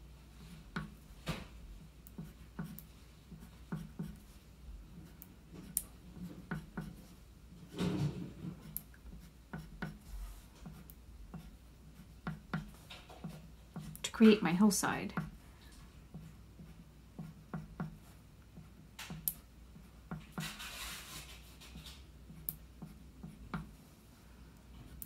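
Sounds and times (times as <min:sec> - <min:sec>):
crayon scratching on paper: 0:02.2 - 0:07.2, 0:19.8 - 0:23.6.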